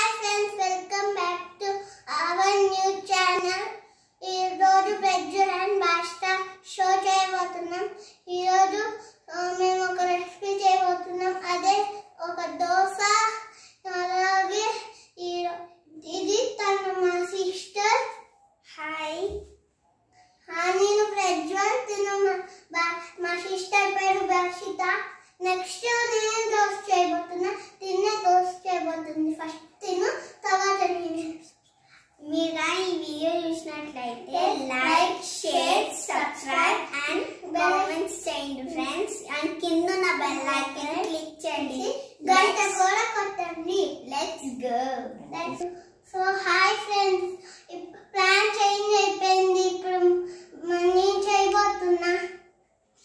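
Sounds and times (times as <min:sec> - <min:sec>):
boy talking sing-song: 0:32.2 - 0:47.2.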